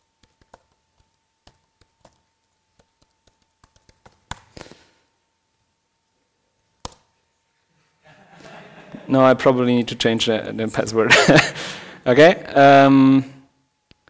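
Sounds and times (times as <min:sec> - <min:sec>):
laptop keys tapping: 0:00.0 - 0:04.7, 0:06.8 - 0:07.1
faint steady whine: 0:00.0 - 0:14.0.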